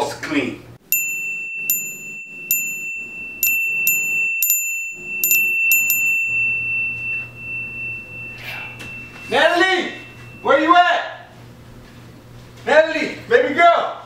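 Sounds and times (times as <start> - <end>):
high ringing tone: 0.8 - 11.5
bright chime-like pings: 0.9 - 11.0.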